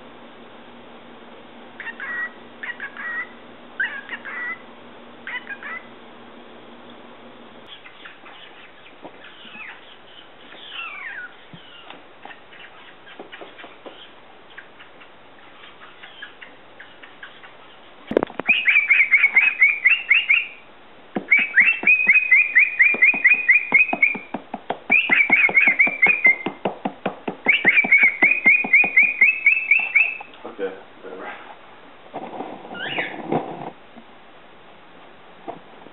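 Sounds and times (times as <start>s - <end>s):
cockatiel chirping: 1.8s - 4.6s, 5.2s - 5.9s, 7.7s - 20.6s, 21.3s - 24.3s, 24.9s - 26.6s, 27.4s - 30.3s, 32.8s - 33.2s
cockatiel whistles: 18.5s - 20.6s, 21.3s - 24.3s, 24.9s - 26.6s, 27.4s - 30.3s, 32.8s - 33.1s.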